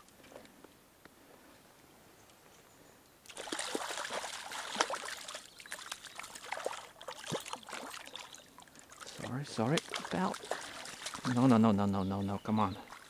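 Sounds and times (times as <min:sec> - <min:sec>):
fish splashing in water: 0:03.3 - 0:11.6.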